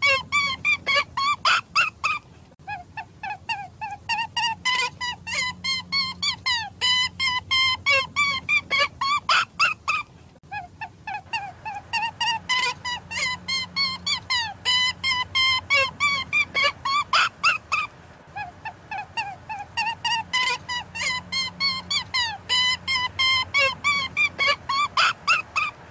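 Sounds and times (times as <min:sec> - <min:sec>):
animal calling high-pitched notes: 0:11.2 - 0:25.8.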